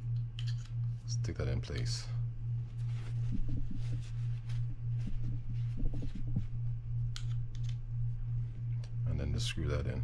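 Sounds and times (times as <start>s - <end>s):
steady low hum: 0.0s - 10.0s
paper towel rustling: 2.6s - 6.6s.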